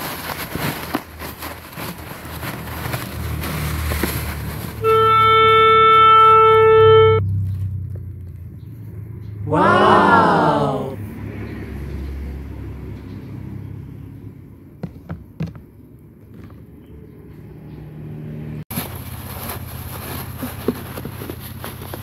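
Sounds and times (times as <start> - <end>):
styrofoam beads crackling: 0.0 - 4.8, 18.7 - 22.0
short voice-like call: 9.5 - 11.1.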